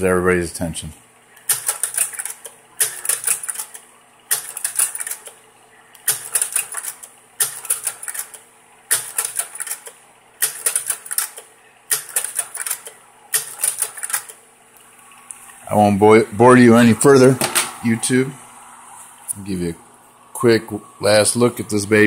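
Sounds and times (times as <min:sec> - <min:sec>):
projector hum: 0:00.0 - 0:22.0
slide projector mechanism clicking: 0:01.4 - 0:05.4, 0:06.0 - 0:14.4.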